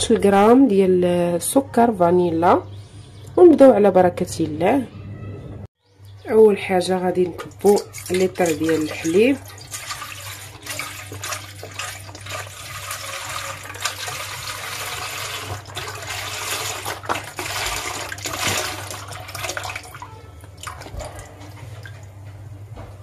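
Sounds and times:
milk pouring into saucepan: 7.4 - 21.2.

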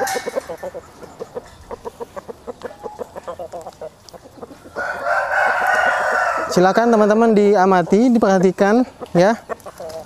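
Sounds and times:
rooster crowing: 0.0 - 0.6, 4.7 - 7.0
chickens clucking: 0.0 - 10.0.

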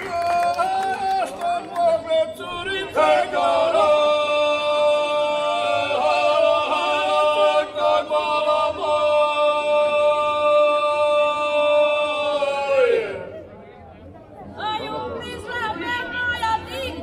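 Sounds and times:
group singing in chorus: 2.1 - 13.3.

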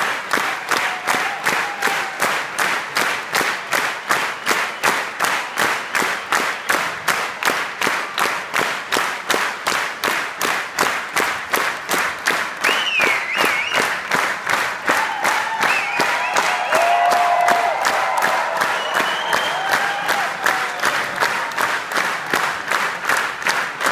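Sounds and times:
audience clapping in unison: 0.0 - 23.9.

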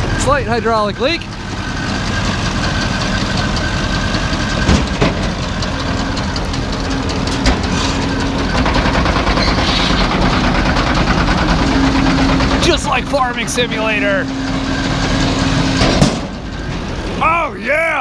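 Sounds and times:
steady whine: 0.0 - 17.6
tractor engine running: 0.0 - 18.0
baler tailgate knocks: 15.8 - 16.5.

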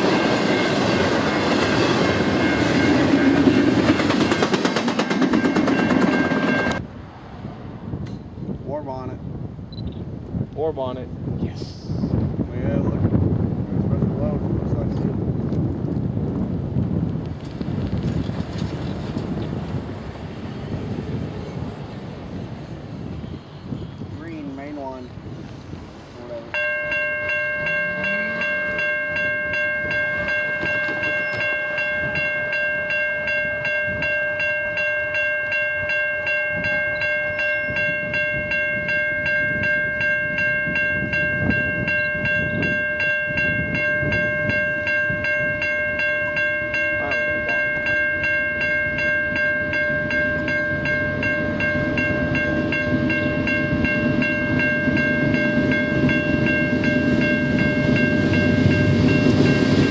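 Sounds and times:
crossing warning bell ringing: 0.0 - 6.9, 26.2 - 59.9
diesel locomotive low rumble: 11.2 - 59.9.

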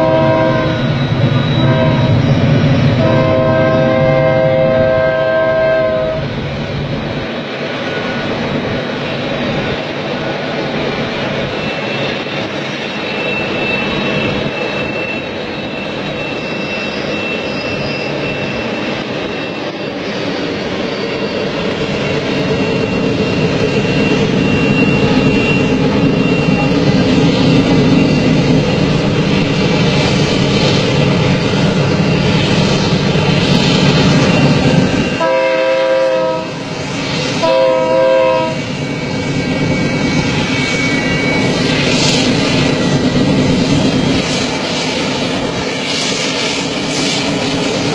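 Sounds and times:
locomotive air horn blasts: 0.0 - 0.9, 1.6 - 2.2, 3.0 - 6.2, 35.2 - 36.7, 37.4 - 38.6
diesel locomotives rumbling: 0.0 - 47.9.

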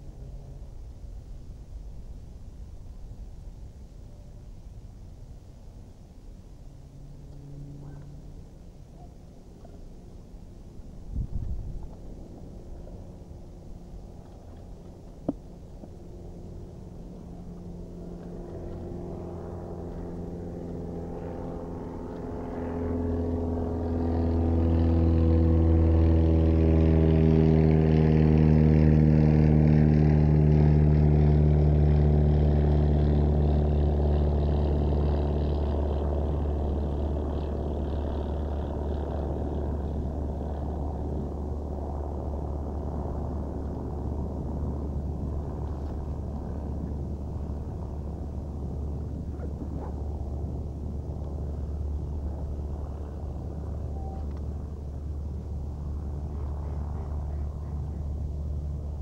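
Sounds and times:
vehicle motor droning past: 6.6 - 59.0.

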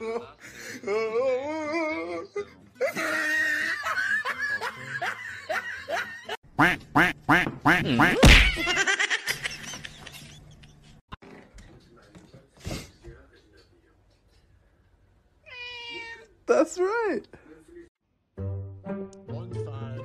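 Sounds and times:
duck quacking: 6.6 - 8.2.

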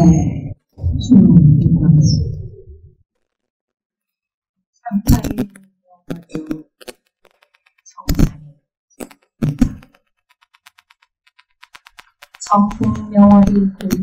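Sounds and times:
faint rapid ticks: 5.1 - 14.0.

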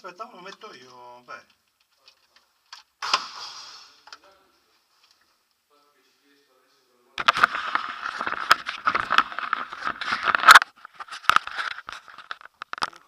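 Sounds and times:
camera casing scraping and rubbing: 7.2 - 12.9.

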